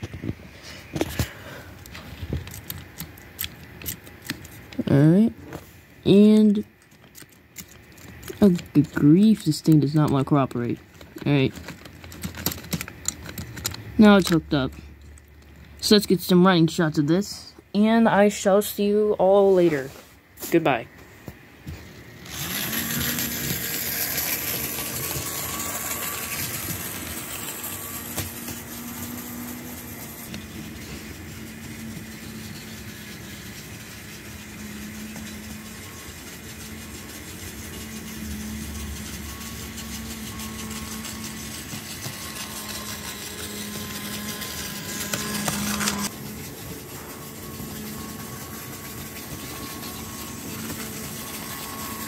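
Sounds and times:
model train wheels on rails: 6.1s - 17.0s, 22.2s - 52.0s
electric motor hum: 21.7s - 52.0s.

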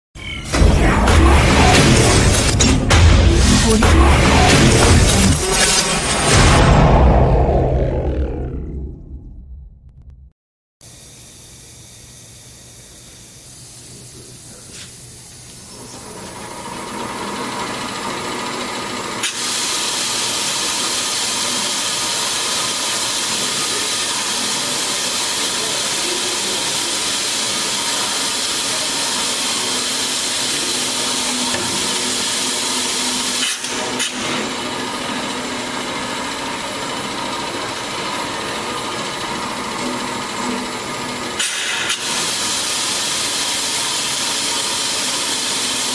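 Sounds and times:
bandsaw running: 0.6s - 6.6s, 15.7s - 45.9s.

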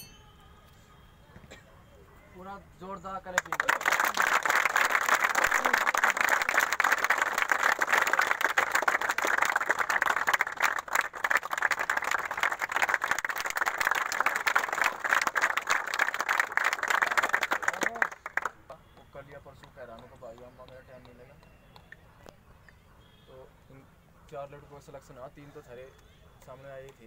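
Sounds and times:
crowd applauding: 3.3s - 21.2s.

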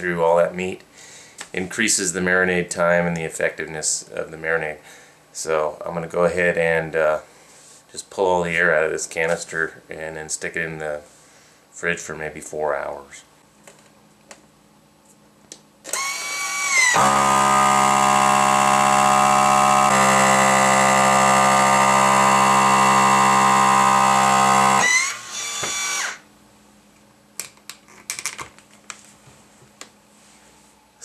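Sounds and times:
vacuum sealer pump droning: 15.9s - 26.2s.

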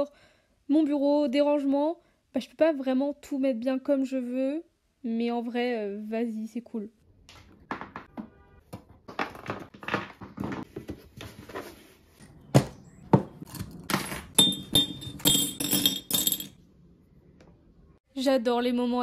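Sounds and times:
metal clinking against glass: 14.4s - 16.6s.

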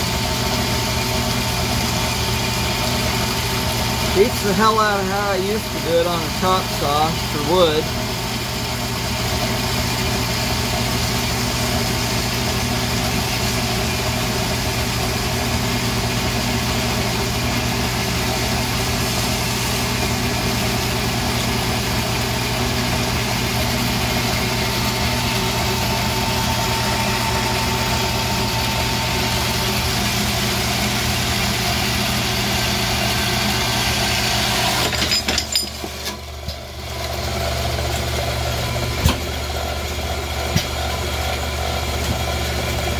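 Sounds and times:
bandsaw cutting metal: 4.1s - 7.9s, 33.2s - 36.3s.

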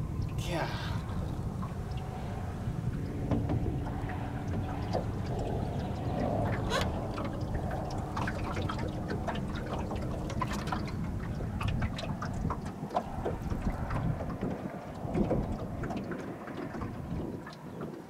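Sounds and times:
faint steady hum: 0.0s - 14.3s
water lapping against boat hull: 0.0s - 18.0s
wind rumble on microphone: 0.0s - 18.0s.

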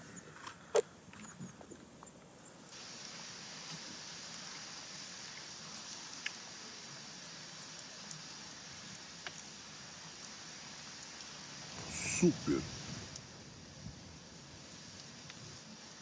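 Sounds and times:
outdoor background hiss: 0.0s - 16.0s
soft ticks: 6.1s - 6.4s, 7.4s - 8.4s, 9.2s - 9.5s, 14.9s - 15.4s.

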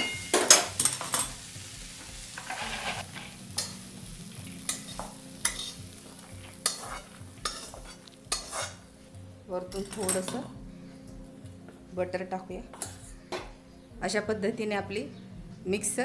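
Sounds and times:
faint sizzle: 0.0s - 11.6s
spatula scraping pan: 2.2s - 3.8s, 4.6s - 9.0s.

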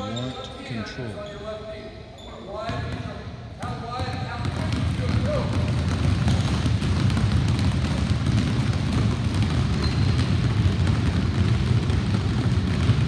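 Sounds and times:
basketballs dribbling on hardwood floor: 2.6s - 13.0s.

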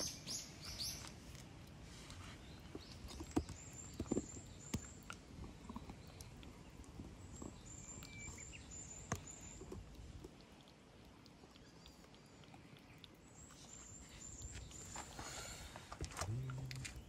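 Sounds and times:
small bird chirping: 0.0s - 1.4s, 2.2s - 10.0s, 10.6s - 17.0s
cat eating from plastic bowl: 0.1s - 17.0s.

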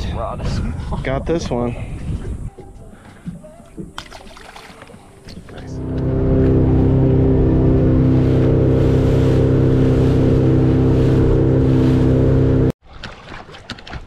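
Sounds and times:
boat motor droning: 5.5s - 12.8s.

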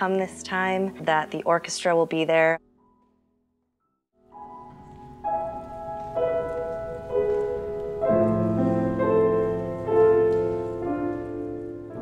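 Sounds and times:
grand piano playing slow chords: 4.2s - 12.0s.

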